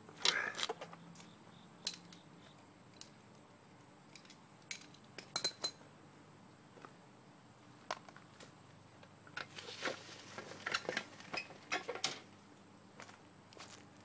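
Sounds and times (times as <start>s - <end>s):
light metallic clinks: 1.8s - 3.4s.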